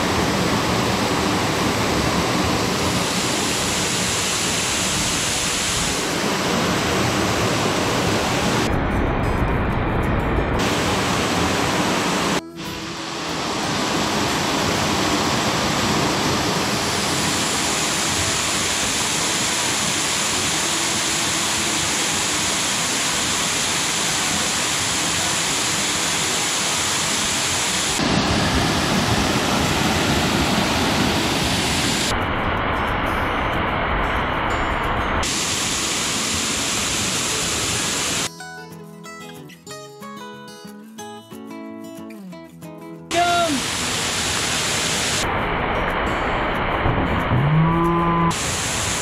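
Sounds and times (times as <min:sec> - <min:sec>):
waterfall splashing into pool: 0:02.3 - 0:08.6, 0:13.1 - 0:32.1, 0:35.2 - 0:38.3, 0:43.1 - 0:49.0.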